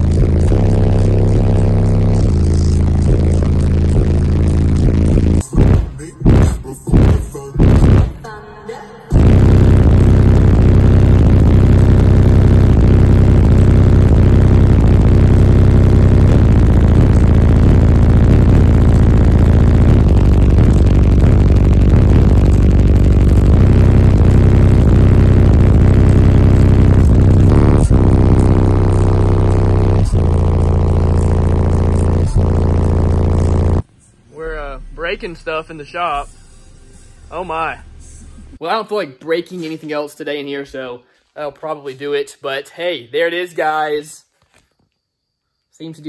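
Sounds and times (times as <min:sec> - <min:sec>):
long held low bass notes: 0:00.0 - 0:08.1, 0:09.2 - 0:33.8
loud bass through subwoofers: 0:00.0 - 0:08.2, 0:09.1 - 0:33.8.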